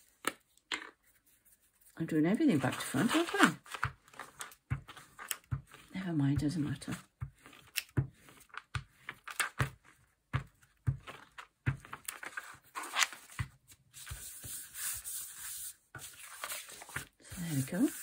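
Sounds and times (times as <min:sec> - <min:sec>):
paper rustling: 0:01.0 - 0:18.0
hands smoothing paper: 0:01.1 - 0:09.4, 0:11.0 - 0:18.0.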